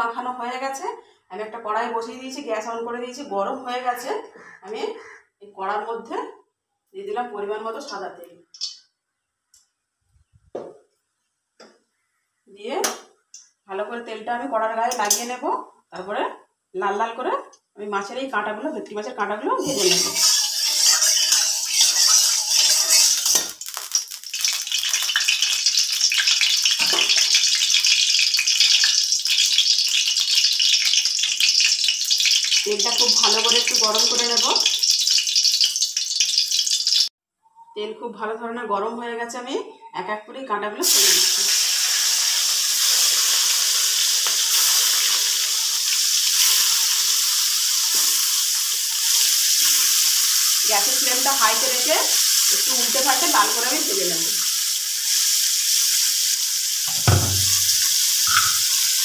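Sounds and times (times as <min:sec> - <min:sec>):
oil sizzling and crackling: 0:07.8 - 0:08.8, 0:19.6 - 0:37.1, 0:40.8 - 0:59.0
metal spatula scraping pan: 0:19.6 - 0:23.6, 0:56.9 - 0:59.0.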